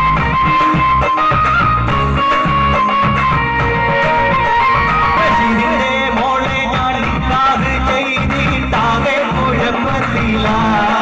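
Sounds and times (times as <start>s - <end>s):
instrumental backing music: 0.0s - 11.0s
man singing into microphone: 5.0s - 11.0s.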